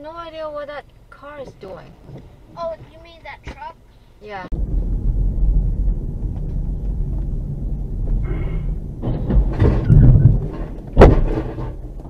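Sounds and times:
car driving rumble: 0.0s - 12.0s
sharp bang: 4.5s - 11.8s
clattering and knocking: 5.8s - 12.0s.

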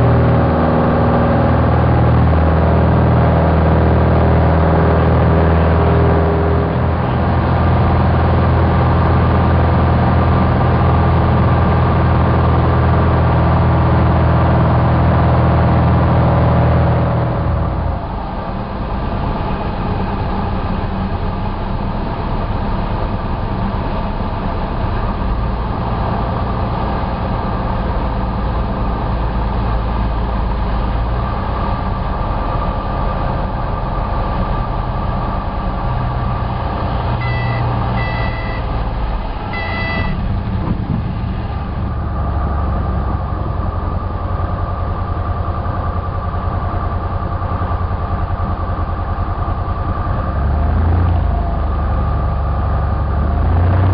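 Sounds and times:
propeller plane engine droning: 0.0s - 53.9s
short beeps: 37.2s - 38.8s, 39.4s - 40.2s.

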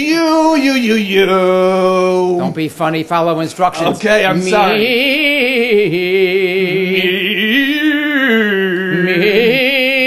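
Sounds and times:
man singing vocal warm-up: 0.0s - 2.8s, 3.8s - 10.0s.

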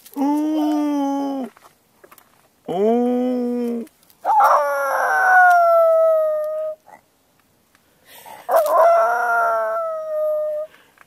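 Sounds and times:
dog howling: 4.3s - 6.8s, 8.5s - 10.7s.

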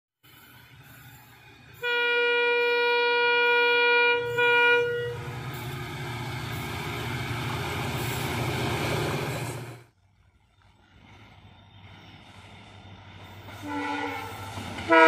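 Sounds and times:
locomotive engine and wheel rumble: 0.2s - 15.0s
diesel locomotive horn blasts: 1.8s - 5.5s, 13.5s - 15.0s.

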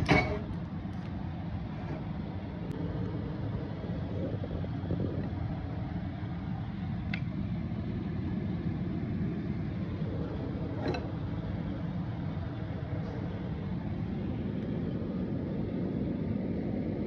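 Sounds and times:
low rumble: 0.0s - 17.0s.

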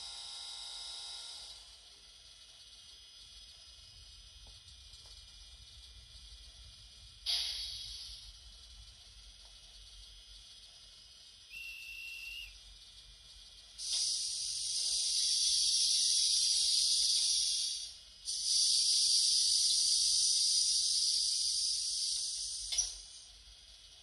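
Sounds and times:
conductor's whistle blast: 11.5s - 12.6s
long hisses: 13.8s - 23.3s.

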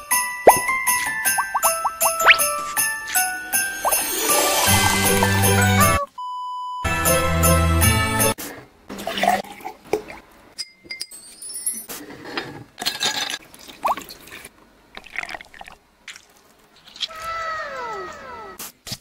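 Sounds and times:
music: 0.0s - 6.1s, 6.8s - 8.4s
rising glass ring: 0.5s - 4.3s
glass clinks: 10.6s - 11.8s
liquid pouring into glasses: 13.6s - 15.8s.

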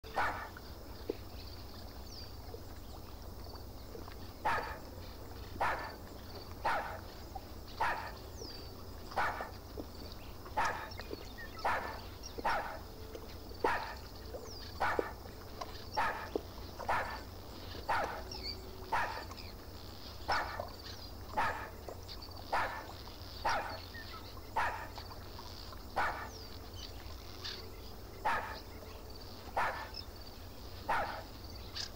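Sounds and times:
dog barking: 0.1s - 0.5s, 4.4s - 4.8s, 5.6s - 6.0s, 6.6s - 7.0s, 7.8s - 8.2s, 9.1s - 9.6s, 10.6s - 10.9s, 11.6s - 12.8s, 13.6s - 14.0s, 14.8s - 15.2s, 16.0s - 17.3s, 17.9s - 18.3s, 18.9s - 19.3s, 20.3s - 20.7s, 21.4s - 21.8s, 22.5s - 23.8s, 24.6s - 25.0s, 26.0s - 26.4s, 28.2s - 28.7s, 29.5s - 30.0s, 30.9s - 31.3s.

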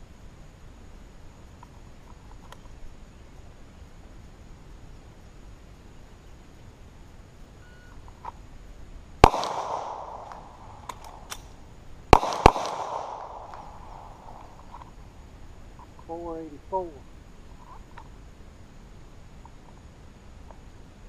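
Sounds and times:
pistol shots: 9.2s - 11.5s, 12.1s - 14.5s
faint sharp clicks: 10.2s - 11.6s.

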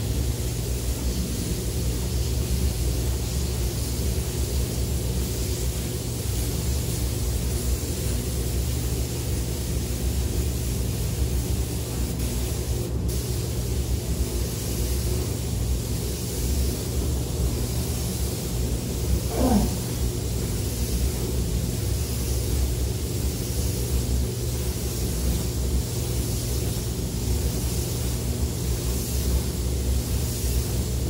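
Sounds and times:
spray gun hissing: 0.0s - 31.0s.

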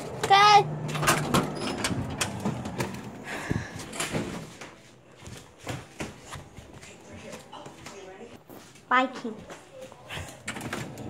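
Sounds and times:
door scraping: 0.2s - 3.2s.

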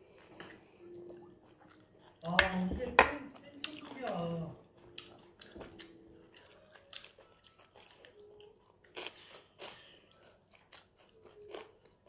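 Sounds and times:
chewing and biting: 4.8s - 12.0s.

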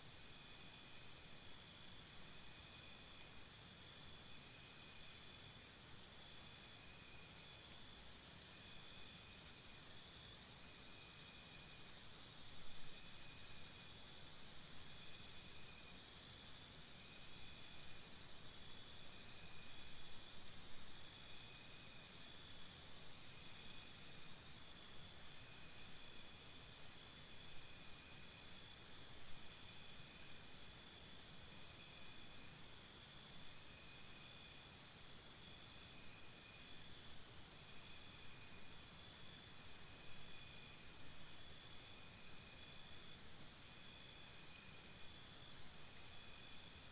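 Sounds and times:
crickets chirping: 0.0s - 46.9s
faint insects calling: 0.0s - 46.9s.

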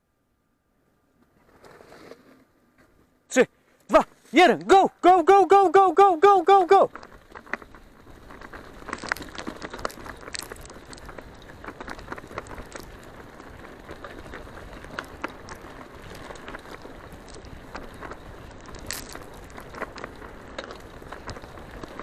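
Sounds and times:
bicycle tyres crunching on dirt: 1.2s - 22.0s
small clicks and crackles: 6.2s - 22.0s.

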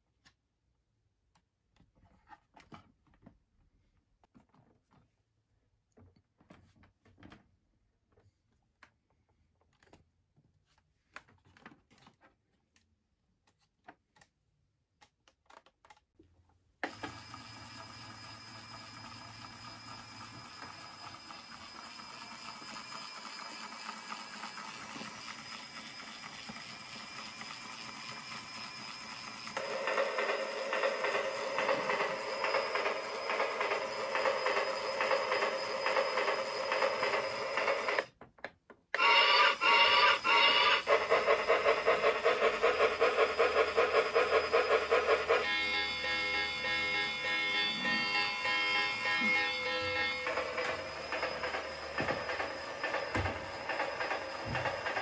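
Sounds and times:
toy train sound effect: 16.8s - 38.1s, 39.0s - 55.0s.

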